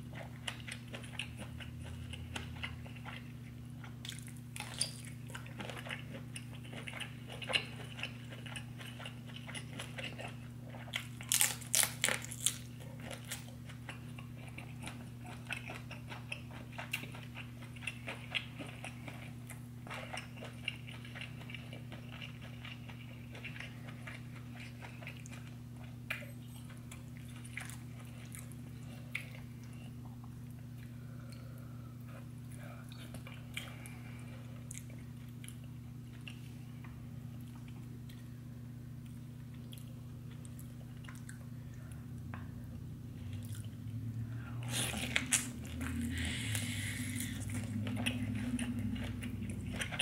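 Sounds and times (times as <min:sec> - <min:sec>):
close chewing and biting: 0:00.0 - 0:30.1, 0:44.6 - 0:50.0
steady low hum: 0:00.0 - 0:50.0.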